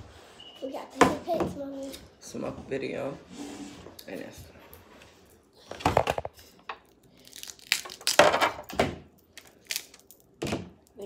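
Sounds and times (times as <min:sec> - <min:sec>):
crab shells cracking: 0:07.2 - 0:08.4, 0:09.3 - 0:10.4.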